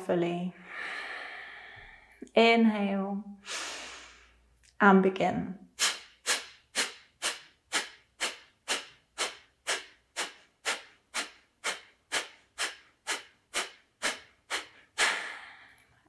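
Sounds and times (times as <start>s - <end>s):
forceful nasal exhales: 3.4s - 4.4s, 5.8s - 15.7s.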